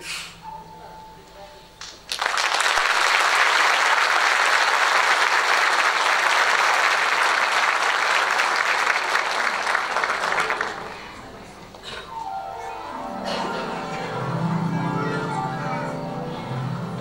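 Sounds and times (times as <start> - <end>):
audience applauding: 1.8 - 11.2.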